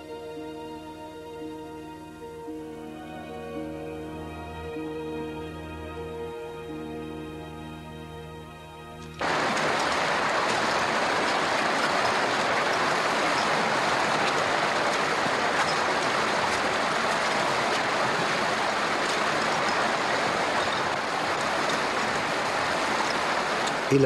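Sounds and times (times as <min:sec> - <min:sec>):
underground river rushing: 0:09.2 - 0:24.0.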